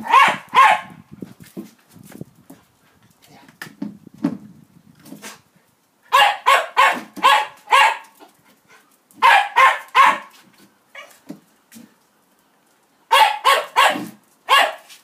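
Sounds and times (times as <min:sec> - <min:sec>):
small dog barking: 0:00.0 - 0:01.0, 0:06.1 - 0:08.2, 0:09.2 - 0:10.4, 0:13.1 - 0:14.9.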